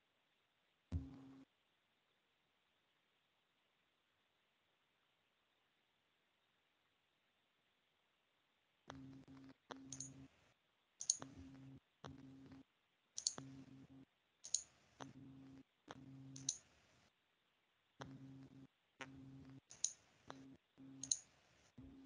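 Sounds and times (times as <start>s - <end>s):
faint clicks: 8.9s - 10.2s, 11.0s - 11.4s, 13.2s - 13.5s, 14.4s - 15.2s, 16.4s - 16.7s, 19.0s - 21.4s.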